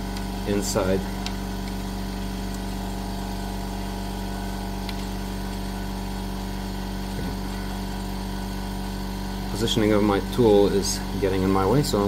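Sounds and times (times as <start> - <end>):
motor hum: 0.0 - 12.0.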